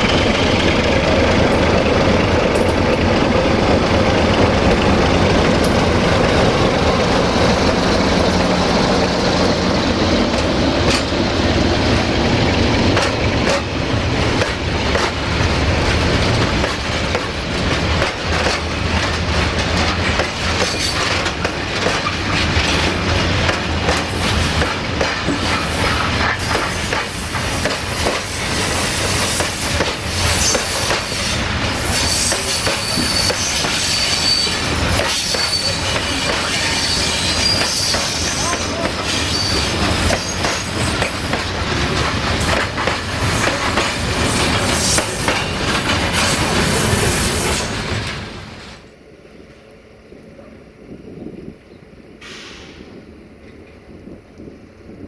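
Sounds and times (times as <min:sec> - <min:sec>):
freight train rumbling past: 0:00.0 - 0:55.0
wheels clattering over rail joints: 0:01.4 - 0:28.4, 0:29.0 - 0:48.4
high-pitched wheel squeal: 0:31.1 - 0:40.7.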